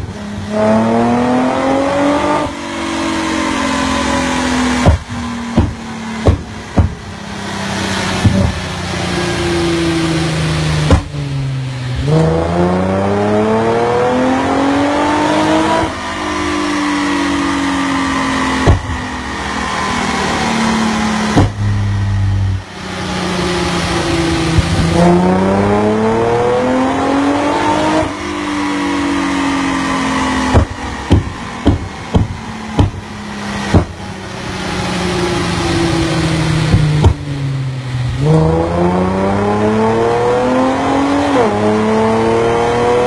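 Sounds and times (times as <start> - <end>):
car engine revving: 0.0 - 43.0
exhaust pops: 4.8 - 7.2, 8.2 - 8.7, 10.8 - 11.3, 18.6 - 19.2, 21.2 - 22.0, 30.5 - 34.1, 36.7 - 37.4.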